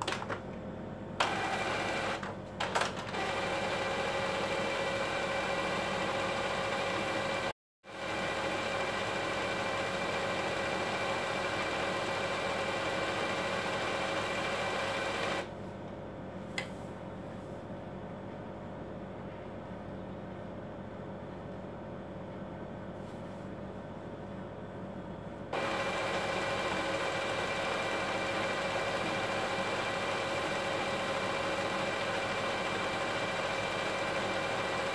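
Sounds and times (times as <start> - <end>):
printer motors whirring: 1.2 - 7.3, 25.6 - 34.9.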